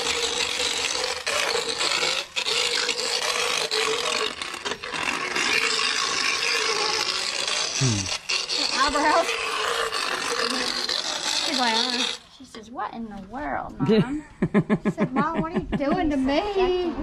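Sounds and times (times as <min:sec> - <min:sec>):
rasping and grinding against teeth: 0:00.0 - 0:12.6
dental float whining: 0:00.0 - 0:12.7.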